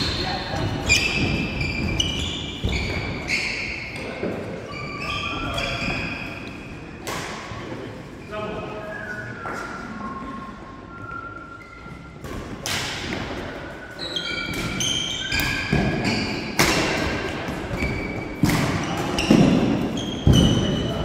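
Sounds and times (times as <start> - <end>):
shoe squeaks: 0.0 - 6.8, 13.7 - 16.6, 17.7 - 21.0.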